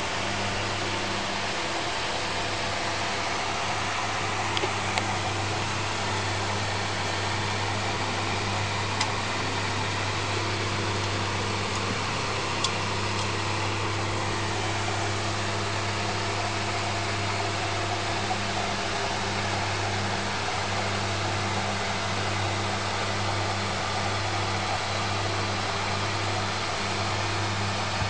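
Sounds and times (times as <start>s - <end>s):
electric fan humming: 0.0s - 28.0s
paw ticking on fan grille: 0.0s - 28.0s.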